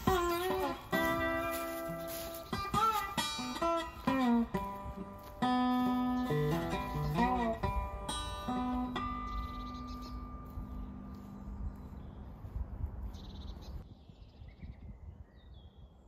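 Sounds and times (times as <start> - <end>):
acoustic guitar plucked notes: 0.0 - 11.2.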